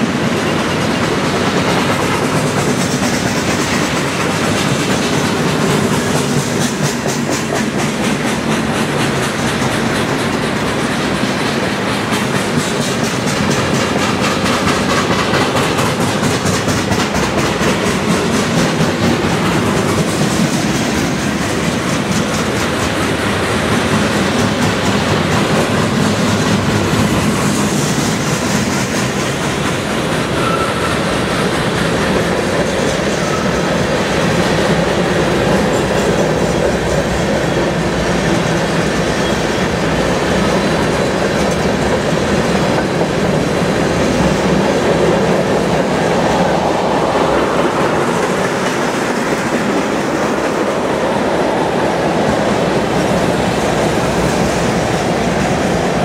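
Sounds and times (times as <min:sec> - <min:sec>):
train wheels rumbling and rattling: 0:00.0 - 0:56.0
wheels clickety-clack on rail joints: 0:00.0 - 0:56.0.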